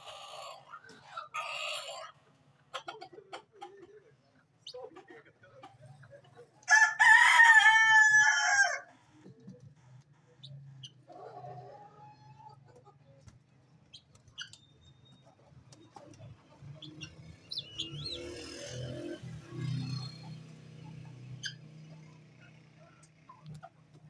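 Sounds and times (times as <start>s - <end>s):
poultry calling: 16.0s - 23.9s.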